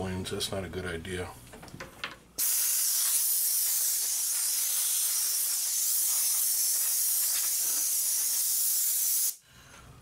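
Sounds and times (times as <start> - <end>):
compressed-air blow gun hissing: 2.4 - 9.4.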